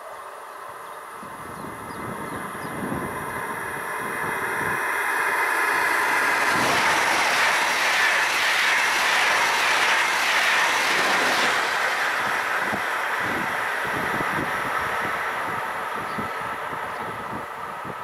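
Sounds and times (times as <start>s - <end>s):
high-speed train passing: 0.0s - 18.0s.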